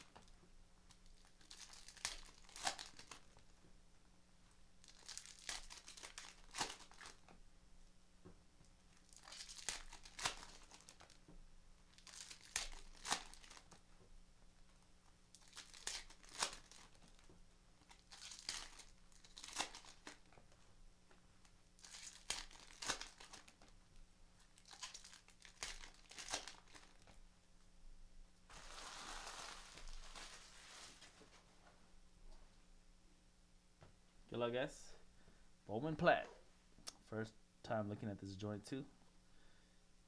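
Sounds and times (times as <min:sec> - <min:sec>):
card pack wrappers crinkling: 0:00.9 - 0:03.5, 0:04.8 - 0:07.2, 0:08.9 - 0:11.2, 0:11.9 - 0:13.8, 0:15.3 - 0:20.4, 0:21.8 - 0:23.7, 0:24.4 - 0:27.2, 0:28.5 - 0:31.4.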